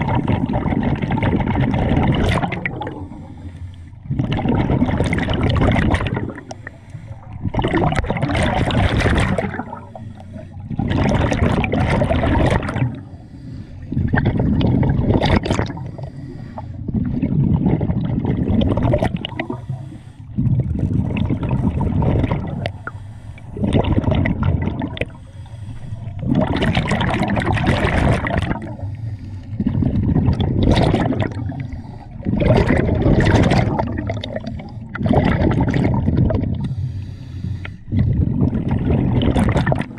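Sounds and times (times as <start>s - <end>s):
air bubbles gurgling: 0.0s - 13.2s, 13.8s - 16.1s, 16.7s - 25.2s, 25.8s - 36.8s, 37.7s - 39.9s
diver inhaling through regulator: 2.8s - 4.3s, 6.1s - 7.6s, 9.6s - 10.9s, 12.6s - 14.6s, 15.6s - 17.1s, 19.4s - 20.6s, 21.5s - 24.0s, 24.9s - 26.7s, 28.6s - 30.1s, 31.2s - 32.5s, 34.2s - 35.1s, 36.5s - 38.4s.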